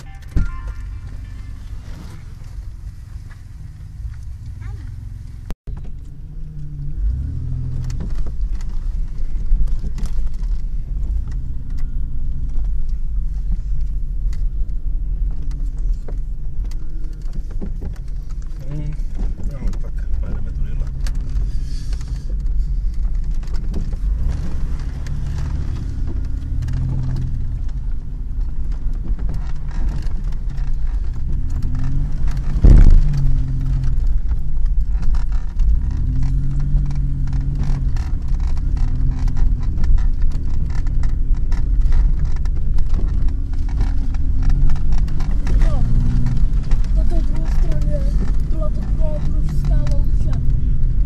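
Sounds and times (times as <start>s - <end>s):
car engine revving: 0.0s - 51.0s
loud thump: 32.5s - 33.2s.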